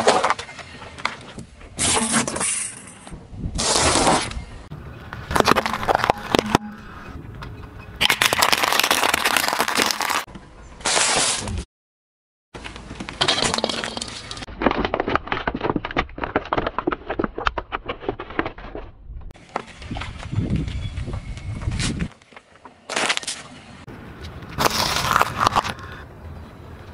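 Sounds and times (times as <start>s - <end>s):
tyres crushing objects: 5.2s - 6.8s, 8.0s - 10.3s, 13.1s - 18.9s, 24.5s - 25.8s.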